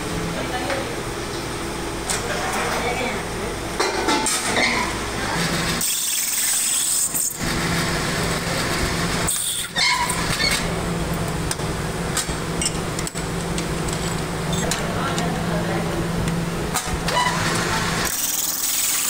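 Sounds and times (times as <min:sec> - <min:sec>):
machinery humming: 0:00.0 - 0:19.0
noisy clatter: 0:03.8 - 0:15.4.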